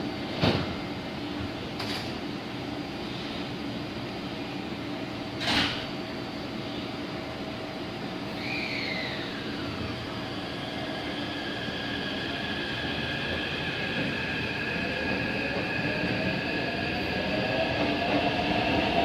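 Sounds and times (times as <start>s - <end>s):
electric train propulsion whine: 6.1s - 19.0s.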